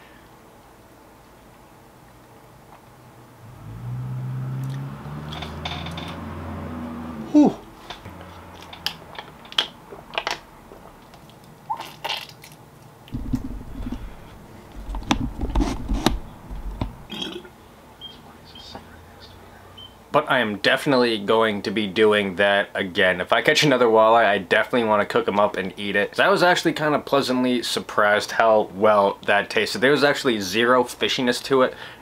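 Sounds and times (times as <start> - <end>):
low knocks and handling noise: 5.2 - 6.4, 13.1 - 17.1
man humming mmm: 7.1 - 7.8.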